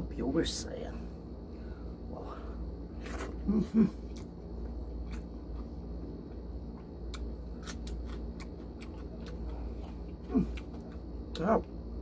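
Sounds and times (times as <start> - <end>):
steady low hum: 0.0 - 12.0
wet chewing clicks: 6.3 - 11.1.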